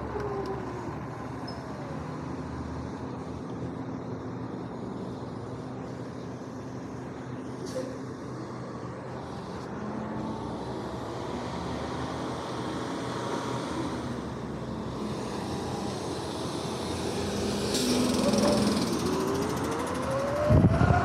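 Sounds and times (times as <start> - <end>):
car driving past: 13.2 - 21.0
garbage truck engine running: 14.3 - 20.4.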